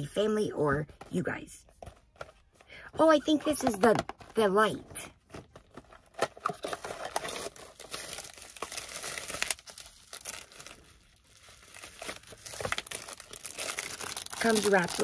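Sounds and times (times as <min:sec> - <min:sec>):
plastic packaging crinkling: 0:05.5 - 0:15.0.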